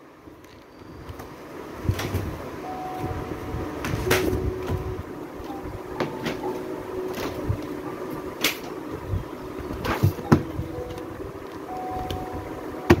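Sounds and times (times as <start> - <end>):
faint steady hum: 0.0 - 13.0
rustles and knocks of books: 9.8 - 11.0.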